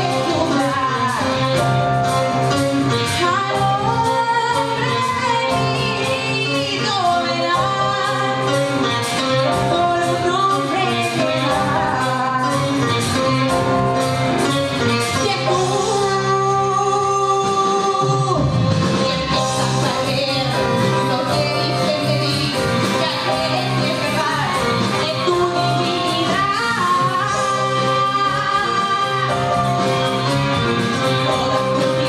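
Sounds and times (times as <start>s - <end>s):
live band playing: 0.0s - 32.0s
girl singing into microphone: 3.2s - 8.8s, 9.6s - 13.8s, 15.0s - 29.5s.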